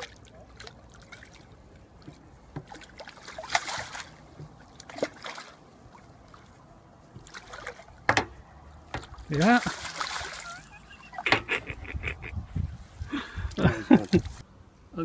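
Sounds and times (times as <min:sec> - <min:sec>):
water splashes and sloshes: 0:00.0 - 0:11.7.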